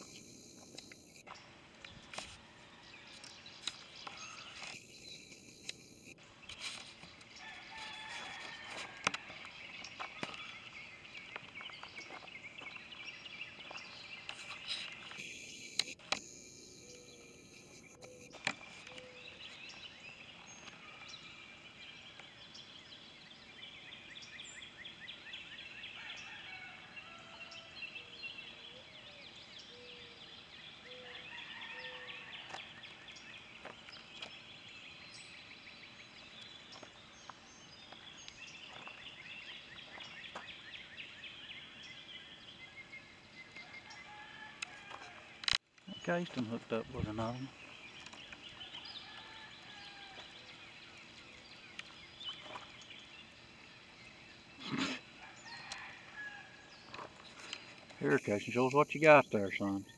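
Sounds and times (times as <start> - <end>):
sharp clicks: 0.0 - 1.3, 4.6 - 6.2, 15.1 - 19.0
birds chirping: 0.0 - 59.9.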